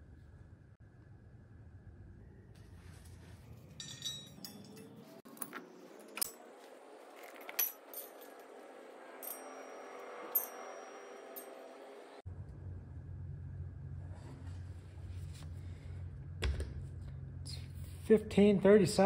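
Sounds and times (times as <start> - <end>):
metallic clinks of bolts and tools: 3.7 - 6.4, 7.1 - 11.8.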